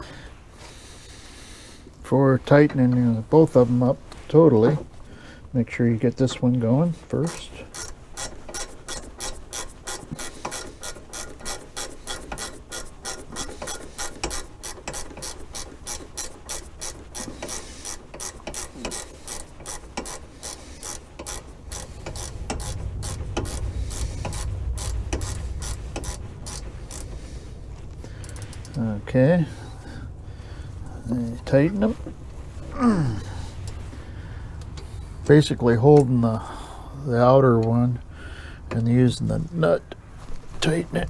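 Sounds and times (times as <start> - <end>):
ratchet wrench clicking: 7.3 - 27.3, 28.2 - 28.8
low rumble: 21.5 - 35.2.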